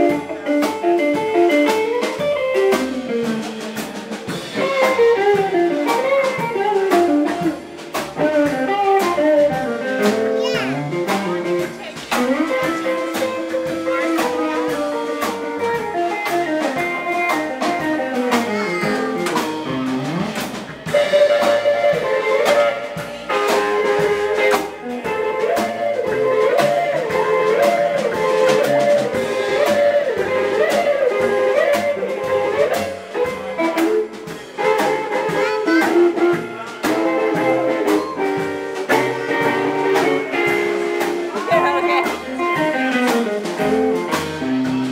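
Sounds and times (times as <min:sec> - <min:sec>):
blues band playing: 0:00.0 - 0:44.9.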